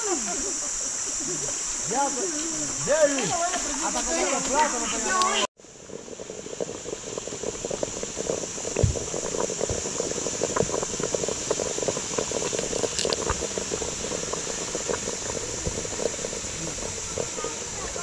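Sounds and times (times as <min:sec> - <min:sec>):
steady high hiss: 0:00.0 - 0:18.0
water bubbling and gurgling: 0:05.6 - 0:18.0.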